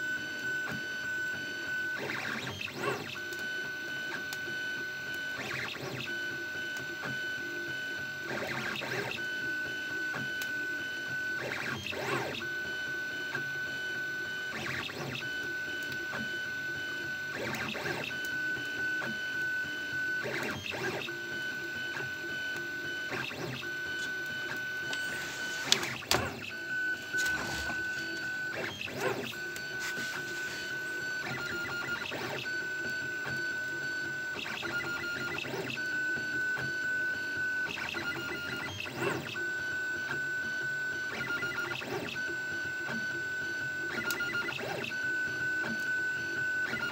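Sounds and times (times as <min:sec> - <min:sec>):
printer motors whining: 0:00.0 - 0:46.9
short sweeping whirs: 0:20.2 - 0:32.4.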